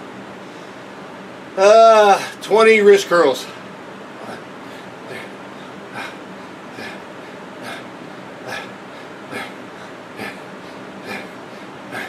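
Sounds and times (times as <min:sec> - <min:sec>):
man breathing sharply through nose: 0:04.2 - 0:12.0.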